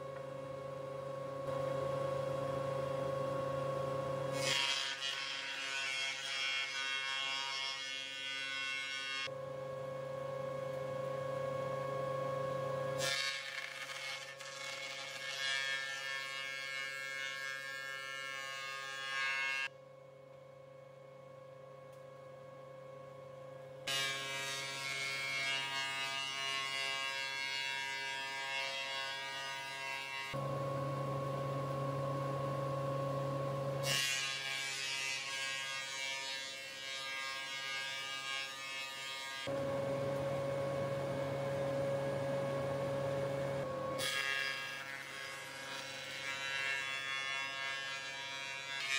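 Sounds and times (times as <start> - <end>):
planer motor hum: 39.4 - 44.8.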